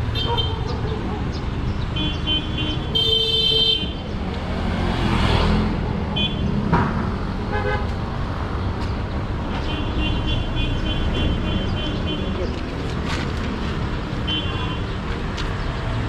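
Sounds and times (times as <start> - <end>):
vehicles passing: 0.0 - 16.0
car horn toots: 2.0 - 4.0.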